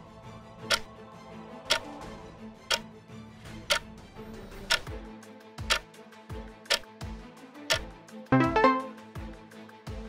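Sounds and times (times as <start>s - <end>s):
soft background music: 0.0s - 10.0s
countdown timer ticking: 4.7s - 5.0s, 5.6s - 5.9s, 6.6s - 6.9s, 7.7s - 9.2s.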